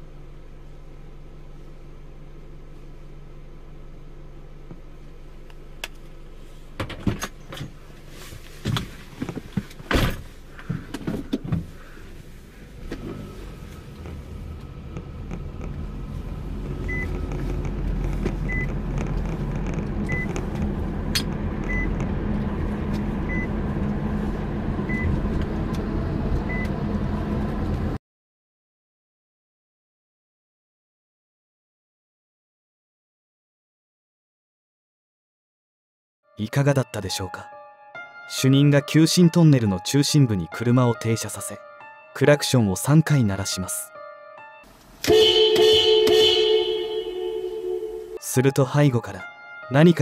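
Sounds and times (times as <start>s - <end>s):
car engine: 0.0s - 28.0s, 44.7s - 48.2s
short electronic chime: 45.1s - 48.4s.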